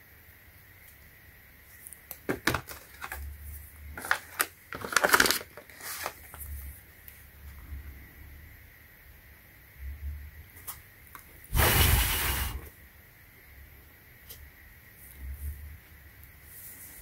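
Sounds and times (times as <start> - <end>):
plastic packaging crinkling: 1.8 - 3.3, 3.9 - 6.6.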